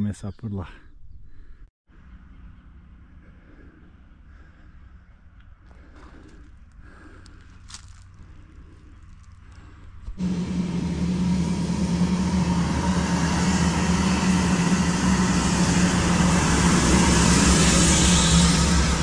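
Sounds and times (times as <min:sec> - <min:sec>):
road noise: 0:01.9 - 0:19.0
heavy truck passing: 0:10.1 - 0:19.0.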